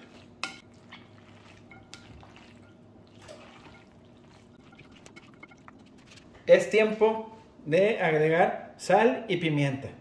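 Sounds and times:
spatula squelching in salad: 0.0s - 6.4s.

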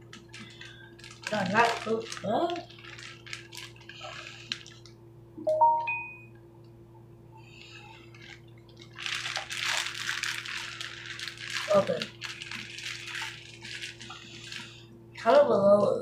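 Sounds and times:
plastic bag crinkling: 0.0s - 5.0s, 7.6s - 14.9s.

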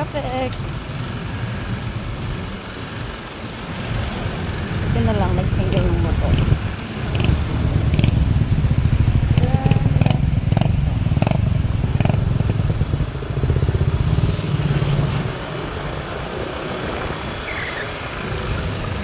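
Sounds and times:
small motorcycle engine running: 3.9s - 15.3s.

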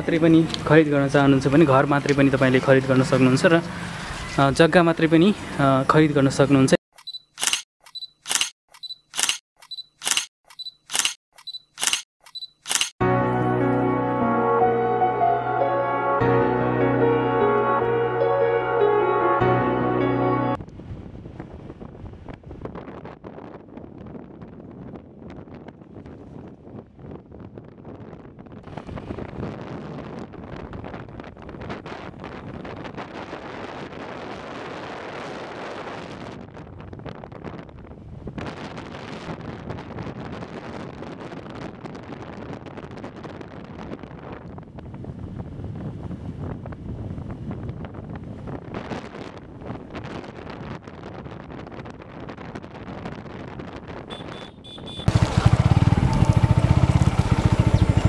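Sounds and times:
wind buffeting microphone: 20.6s - 58.0s
motorbike engine: 54.1s - 58.0s.

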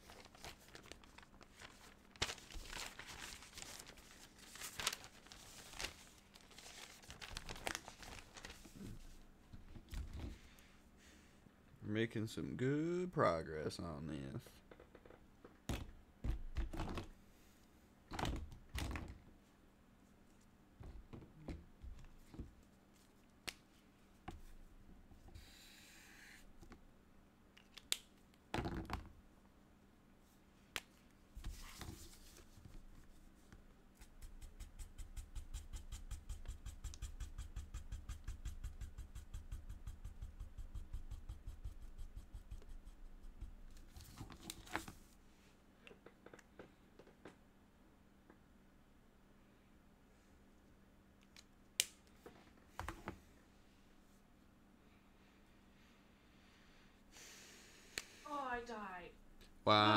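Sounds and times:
paper rustling: 0.0s - 9.1s
marker scribbling on paper: 34.0s - 43.5s
markers clicking and knocking: 34.0s - 43.8s.

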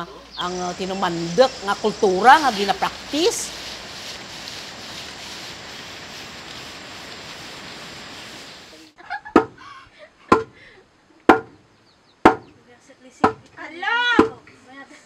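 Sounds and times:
steady hiss: 0.0s - 9.1s
pestle pounding in mortar: 9.3s - 9.6s, 10.3s - 10.6s, 11.3s - 11.6s, 12.2s - 12.5s, 13.2s - 13.5s.

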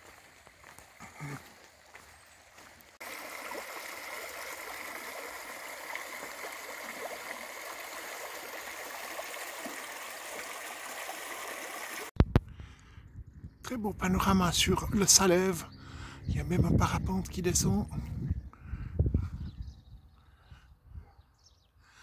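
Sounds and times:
stream running over stones: 0.0s - 12.2s.

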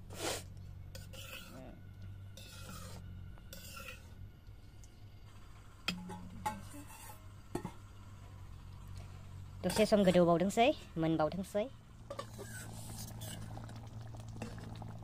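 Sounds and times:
steady low hum: 0.0s - 15.0s
metal ladle scraping wok: 0.1s - 1.7s, 2.3s - 4.2s, 5.8s - 7.7s, 9.6s - 10.4s, 12.1s - 13.6s.

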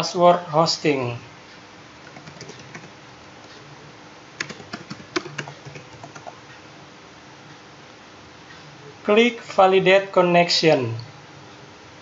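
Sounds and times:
computer keyboard typing: 2.0s - 3.6s, 4.4s - 6.4s.

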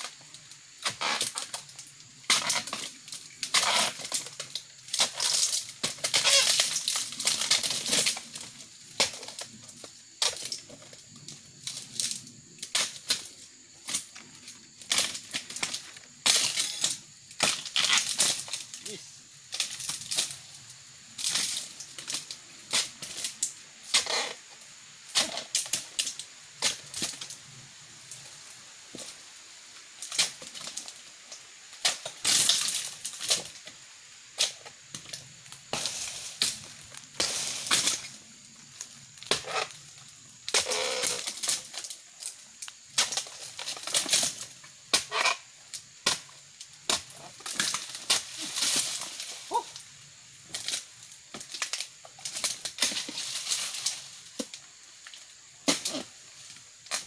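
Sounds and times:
dry fronds crackling: 12.9s - 20.5s, 46.1s - 57.0s
blade chopping palm fronds: 46.0s - 49.6s, 55.6s - 56.1s.

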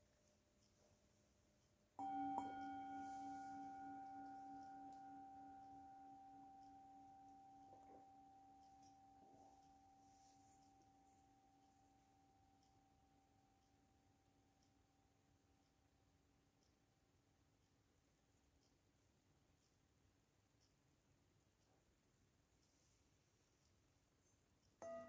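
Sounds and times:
metal singing bowl ringing: 2.0s - 10.6s.

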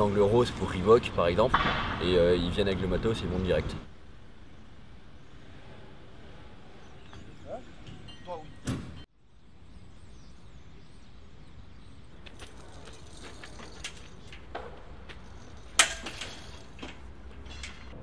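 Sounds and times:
low outdoor rumble: 0.0s - 7.9s
metal tent frame clanking: 12.6s - 18.0s.

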